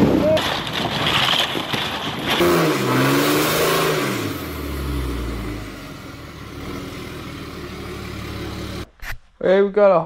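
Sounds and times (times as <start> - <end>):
truck engine revving: 2.4 - 8.9.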